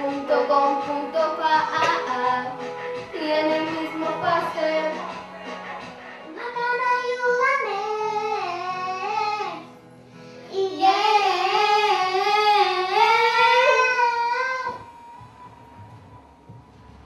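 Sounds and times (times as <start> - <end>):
girls singing into microphones: 0.0 - 5.1, 10.5 - 14.9
pop backing track: 0.0 - 16.8.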